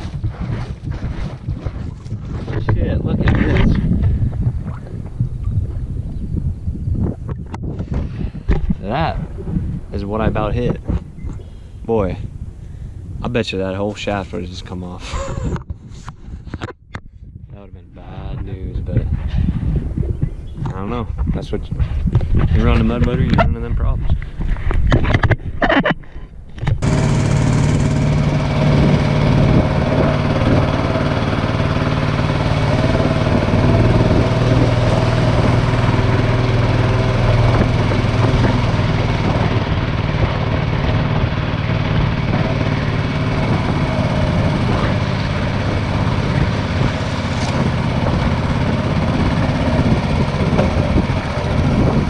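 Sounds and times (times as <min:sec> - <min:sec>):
boat engine running steadily: 0:00.0 - 0:13.2, 0:26.6 - 0:52.0.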